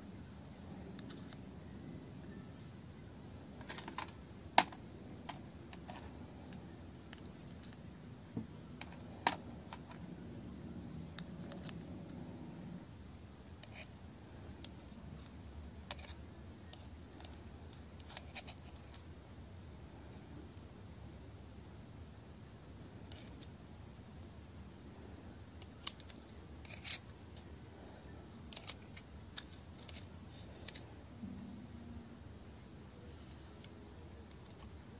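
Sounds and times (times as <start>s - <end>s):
small plastic clicks: 14.6s - 19.0s, 23.0s - 23.5s, 25.5s - 27.5s, 28.4s - 30.9s, 33.2s - 34.8s.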